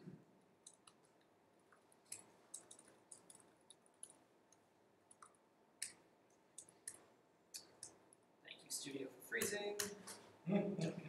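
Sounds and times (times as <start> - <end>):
laptop keys clicking: 0.6 - 1.3, 2.0 - 8.0.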